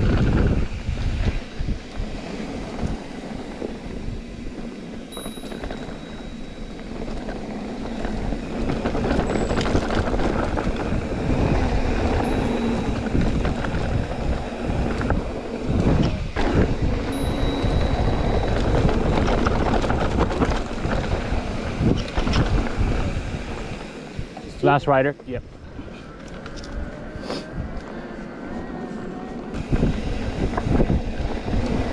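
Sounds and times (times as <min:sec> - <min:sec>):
wind rushing: 0:00.0 - 0:24.8, 0:26.8 - 0:31.9
bike clicks and knocks: 0:05.0 - 0:11.3.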